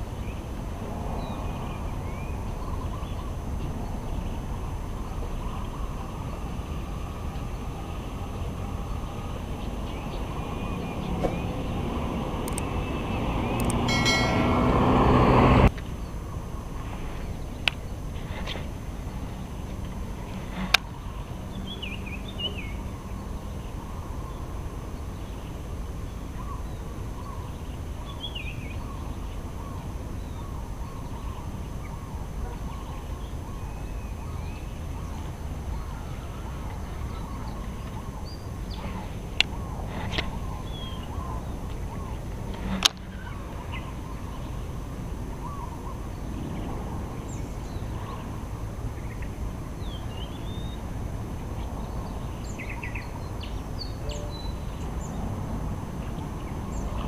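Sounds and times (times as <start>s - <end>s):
birds chirping: 0.0s - 50.9s, 51.6s - 57.0s
low outdoor rumble: 0.0s - 57.0s
sharp clicks: 12.4s - 12.7s, 13.6s - 13.8s.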